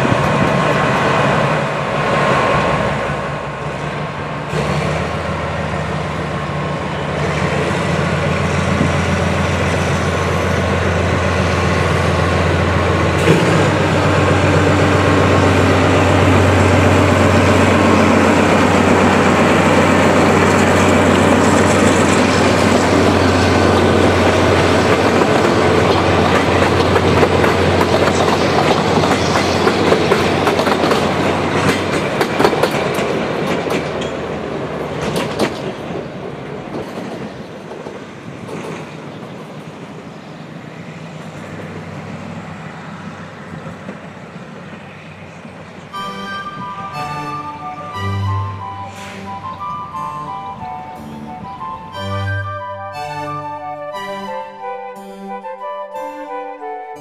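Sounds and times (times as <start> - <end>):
diesel locomotive engine droning: 0.0 - 57.0
train wheels clattering over rail joints: 17.0 - 39.6.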